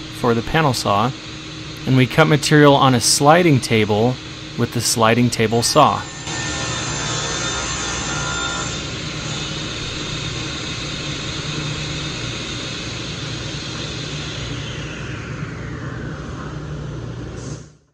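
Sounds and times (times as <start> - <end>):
table saw whirring: 0.1 - 16.5
saw blade whine falling: 1.9 - 17.6.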